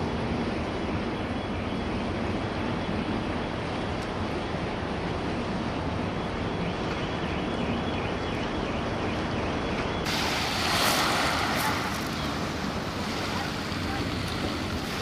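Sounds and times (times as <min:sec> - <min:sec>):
wind and water rushing: 0:10.0 - 0:15.0.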